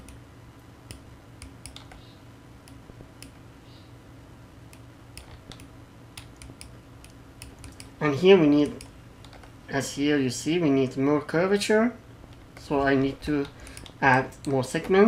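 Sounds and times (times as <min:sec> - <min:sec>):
low steady hum: 0:00.0 - 0:15.0
mouse and keyboard clicks: 0:00.9 - 0:02.1, 0:04.8 - 0:08.0, 0:08.6 - 0:09.5.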